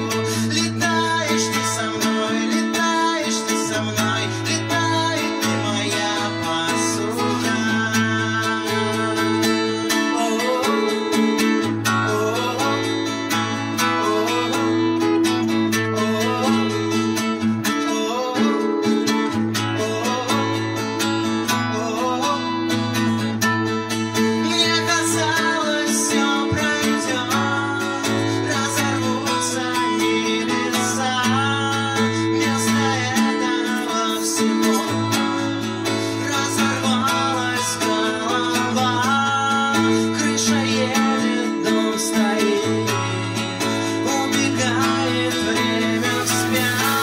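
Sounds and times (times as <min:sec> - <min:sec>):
person singing: 0:00.0 - 0:47.0
strummed acoustic guitar: 0:00.0 - 0:47.0
drums with cymbals: 0:46.2 - 0:47.0.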